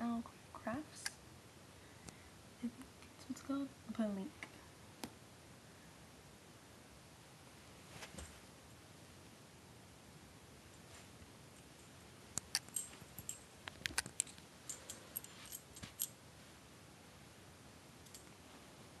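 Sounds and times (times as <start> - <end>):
light clicks and short jingles: 12.4 - 16.2.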